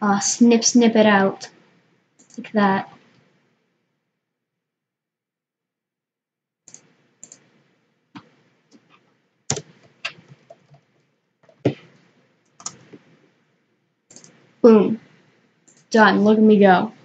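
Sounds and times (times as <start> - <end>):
keyboard keystroke clicks: 9.5 - 10.8, 14.1 - 14.4.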